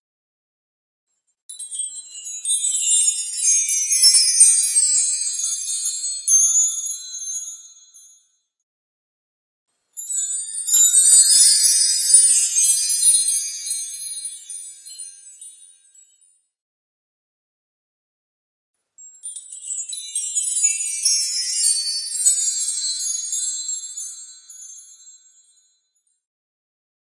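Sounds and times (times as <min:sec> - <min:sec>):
metallic chimes tinkling: 0:01.5 - 0:08.4, 0:10.0 - 0:16.4, 0:19.0 - 0:26.1.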